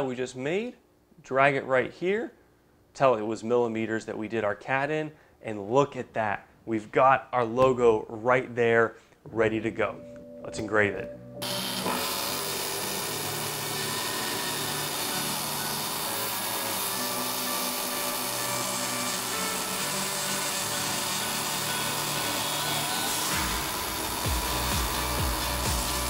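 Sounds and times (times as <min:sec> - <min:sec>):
engraving stylus buzzing and scratching: 0:11.4 - 0:26.0
stepper motors humming: 0:11.4 - 0:26.0.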